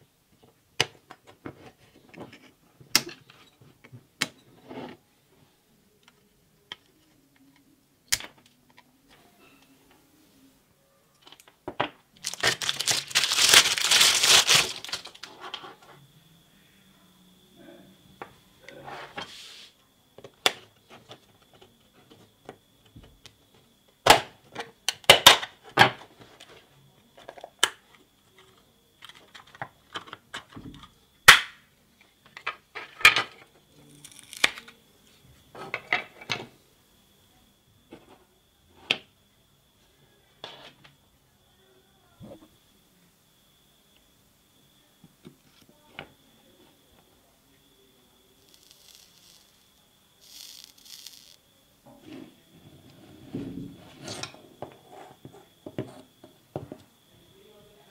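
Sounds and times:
plastic case cracking under knife: 12.2s - 15.3s.

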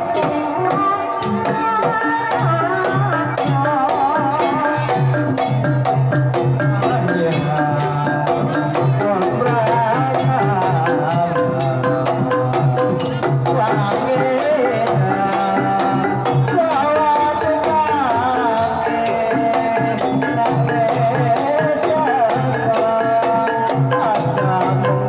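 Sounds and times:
woman singing: 0.0s - 5.4s
gamelan music: 0.0s - 25.0s.

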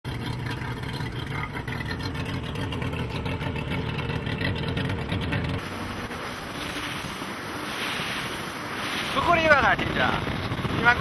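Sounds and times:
outboard motor droning: 0.0s - 11.0s
wind: 0.0s - 11.0s
rushing water: 5.6s - 11.0s.

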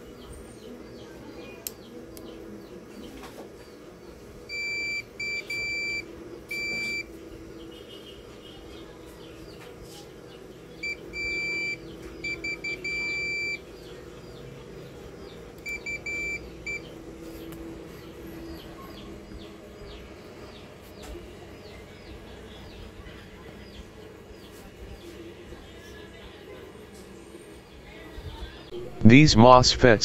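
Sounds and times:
multimeter continuity beeps: 4.5s - 7.2s, 10.8s - 13.7s, 15.6s - 17.0s.

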